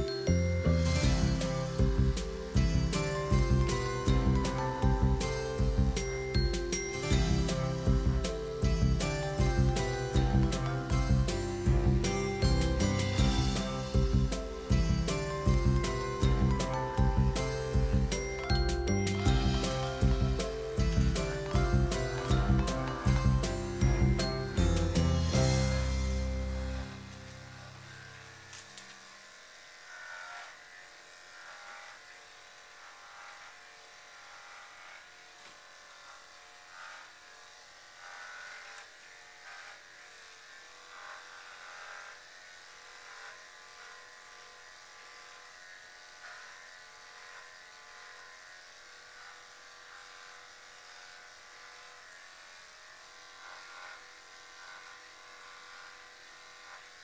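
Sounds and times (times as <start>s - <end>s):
electric clippers buzzing: 0.0s - 57.0s.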